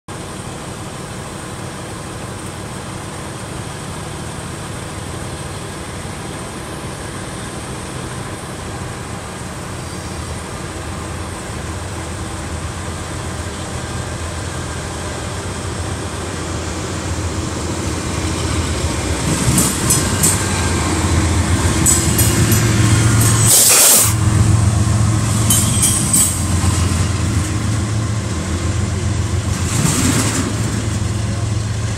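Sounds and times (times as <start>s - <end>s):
diesel locomotive engine rumble: 0.1s - 31.9s
sharp train clacks: 17.3s - 28.5s, 29.2s - 31.4s.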